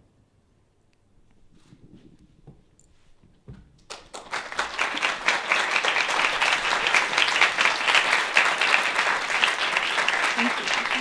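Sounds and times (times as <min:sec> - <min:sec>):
audience applauding: 0:03.9 - 0:11.0.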